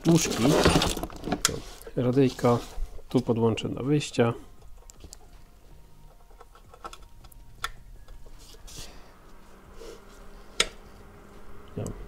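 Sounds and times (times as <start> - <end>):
faint steady hum: 1.0 - 12.0
connectors and cables clicking: 4.6 - 5.3, 6.0 - 8.2.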